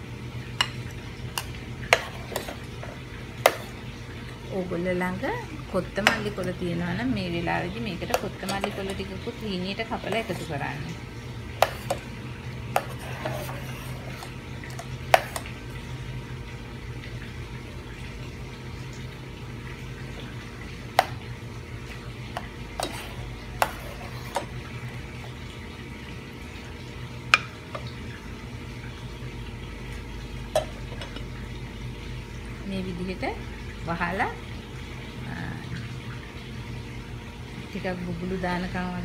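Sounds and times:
ladle stirring sauce: 0.6s - 4.3s, 8.0s - 15.8s, 22.3s - 25.6s.

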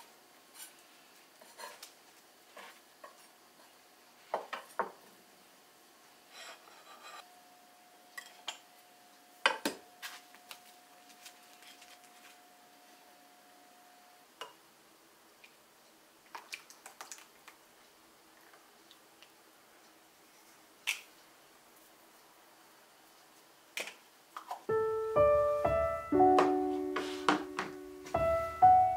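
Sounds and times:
faint steady hum: 0.0s - 16.4s.

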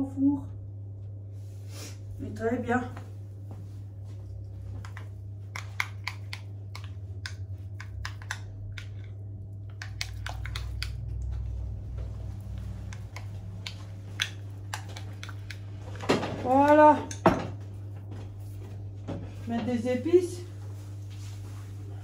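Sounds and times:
steady low hum: 0.0s - 22.0s
utensil tapping against bowl: 4.8s - 9.1s, 9.7s - 11.0s, 12.9s - 15.6s.

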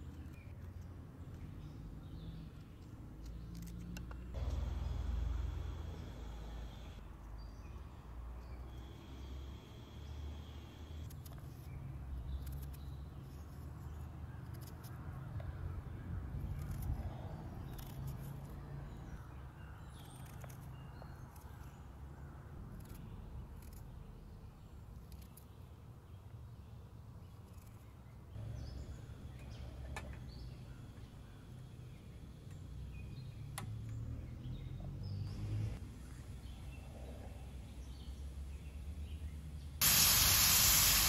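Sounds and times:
low outdoor rumble: 4.2s - 7.0s.

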